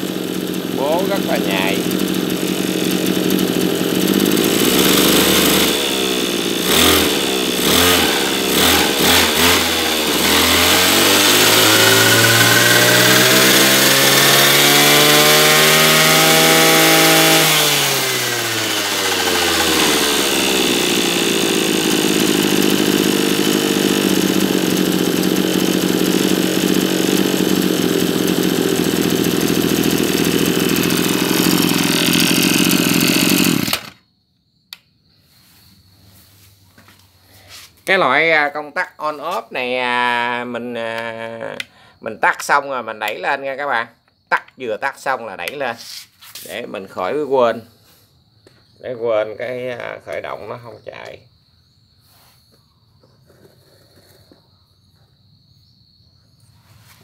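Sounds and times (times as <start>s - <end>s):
brush cutter engine revving: 0.0s - 34.0s, 39.0s - 41.6s, 49.2s - 51.2s.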